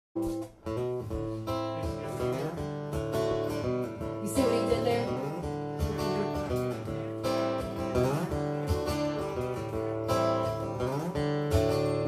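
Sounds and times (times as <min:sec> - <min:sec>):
drums: 0:00.2 - 0:03.0
strummed guitar: 0:00.2 - 0:12.0.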